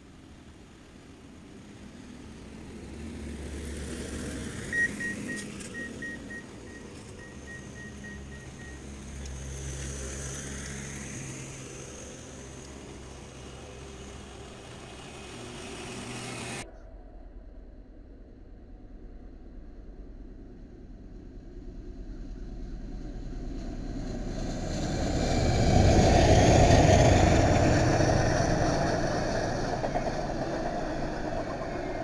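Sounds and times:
track machine engines passing: 0.0 - 16.7, 21.3 - 32.0
short electronic beeps: 4.7 - 8.8.

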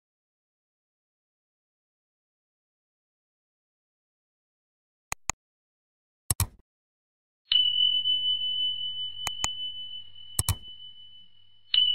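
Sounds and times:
sharp mouse clicks: 5.1 - 5.4, 6.3 - 6.6, 9.3 - 9.5, 10.4 - 10.6
high bell ding: 7.5 - 11.9.

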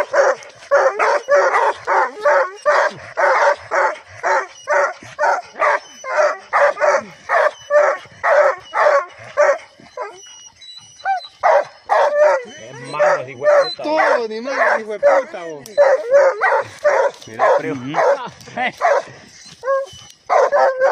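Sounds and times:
dog barking rapidly: 11.4 - 19.1.

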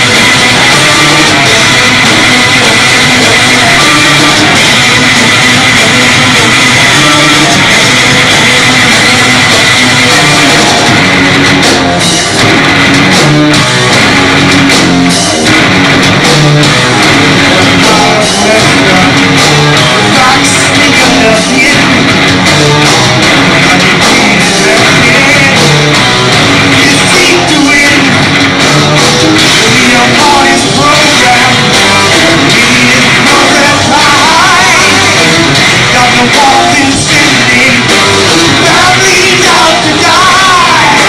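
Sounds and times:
distorted electric guitar: 0.0 - 41.0
drums: 0.0 - 41.0
person singing into a microphone: 3.4 - 5.0, 17.4 - 22.0, 23.6 - 25.9, 26.8 - 28.3, 29.4 - 41.0.

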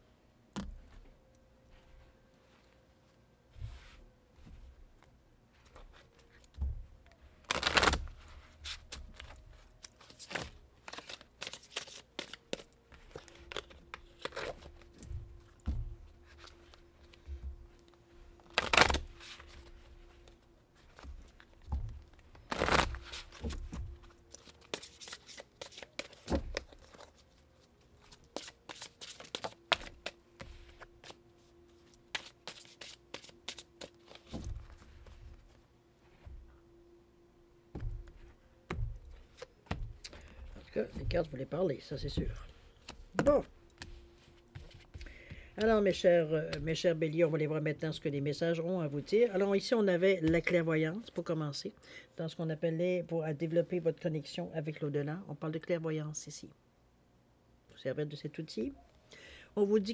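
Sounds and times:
cards being shuffled: 7.4 - 35.6, 39.1 - 46.8.

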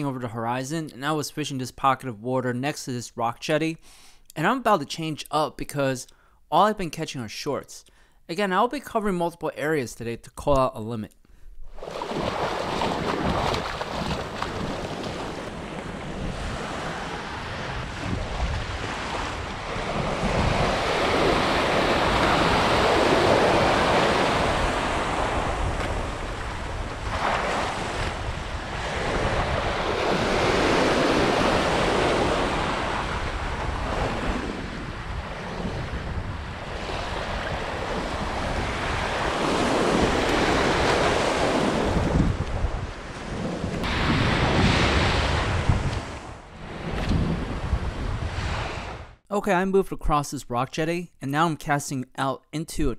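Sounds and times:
small waves breaking on sand: 11.7 - 49.1
wind rumbling on microphone: 11.7 - 49.2.

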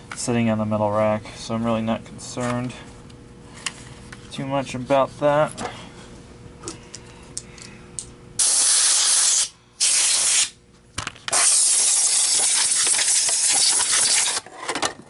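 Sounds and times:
compressed air blasts hissing: 8.4 - 10.6, 11.3 - 14.4.

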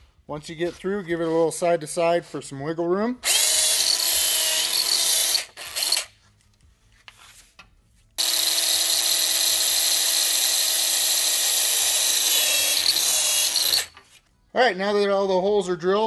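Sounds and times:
electric drill boring through plastic: 3.2 - 6.1, 8.2 - 14.0.

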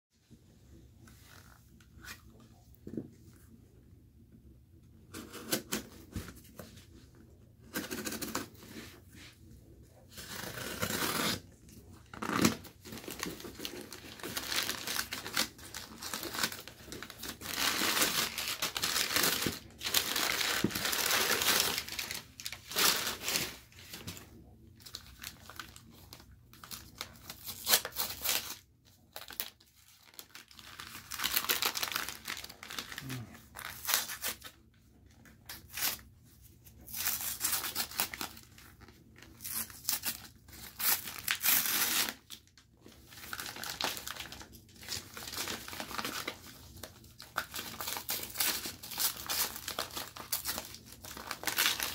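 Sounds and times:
cardboard being torn: 10.1 - 11.4
packing paper crumpling: 10.2 - 24.2, 24.8 - 34.6, 36.8 - 51.9.

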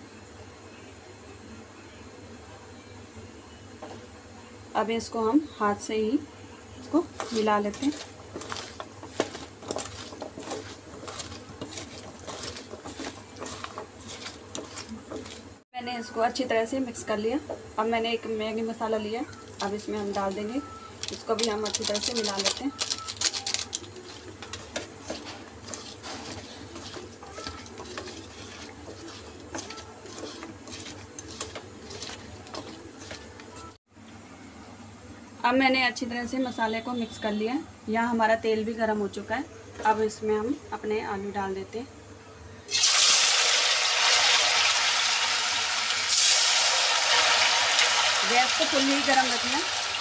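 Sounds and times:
potato slices squelching in bowl: 6.8 - 15.6, 19.4 - 33.8.

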